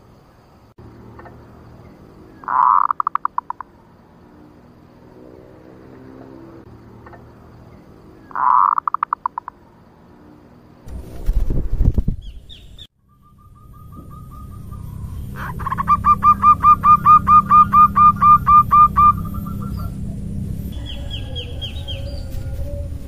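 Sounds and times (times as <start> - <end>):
high rising chirps: 12.2 - 22.3
dove trill: 12.2 - 23.0
steady low rumble: 13.7 - 23.0.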